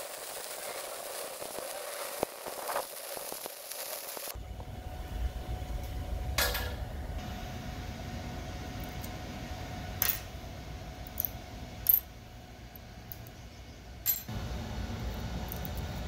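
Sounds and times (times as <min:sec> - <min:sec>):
electrode stubs scraping on steel: 0:00.0 - 0:04.4
low mechanical hum: 0:00.0 - 0:16.0.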